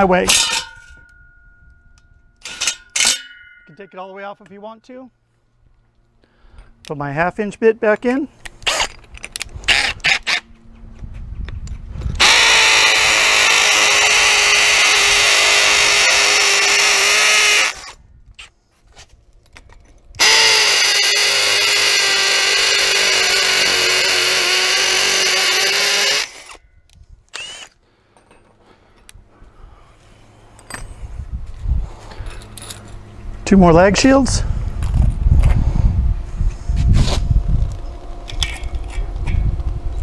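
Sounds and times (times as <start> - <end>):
drill boring into brick: 8.6 - 9.0, 12.2 - 18.0, 20.2 - 26.6, 27.3 - 27.8.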